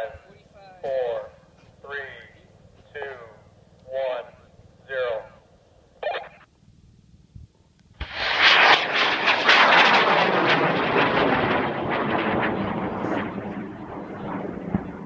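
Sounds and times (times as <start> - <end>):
rocket motor roaring with crackles: 8.0 - 15.0.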